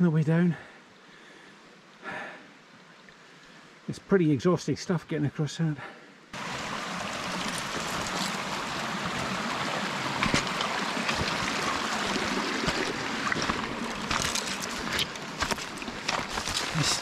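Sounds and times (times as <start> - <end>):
leaves rustling: 6.4 - 17.0
stream rushing over rocks: 6.4 - 17.0
footsteps on a path: 7.4 - 8.6, 10.1 - 17.0.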